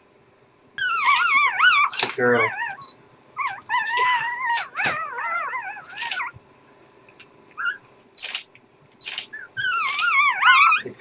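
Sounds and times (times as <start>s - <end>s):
dog whining: 0.8s - 6.4s, 7.6s - 7.9s, 9.2s - 11.0s.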